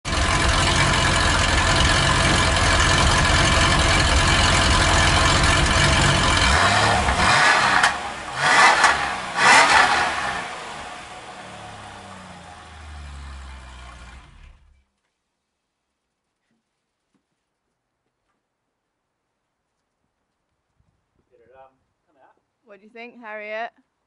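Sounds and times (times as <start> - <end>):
car engine idling and revving: 0.0 - 14.8.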